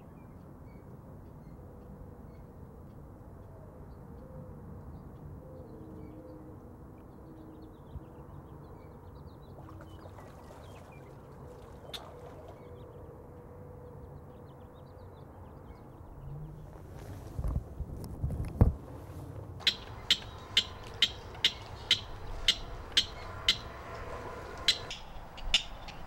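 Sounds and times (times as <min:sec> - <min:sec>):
low steady rumble: 0:16.1 - 0:26.0.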